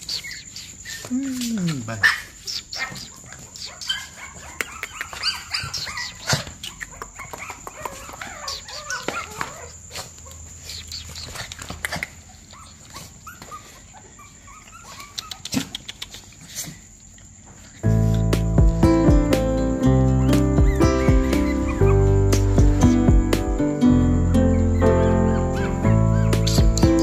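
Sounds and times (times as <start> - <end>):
puppies whining and yelping: 2.1 - 16.9, 20.1 - 23.0, 24.2 - 27.0.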